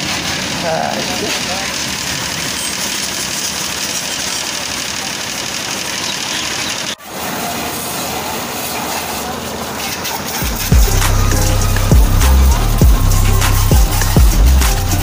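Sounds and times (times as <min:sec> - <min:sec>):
pressure washer spray hissing: 0:00.0 - 0:15.0
washer motor running: 0:00.0 - 0:15.0.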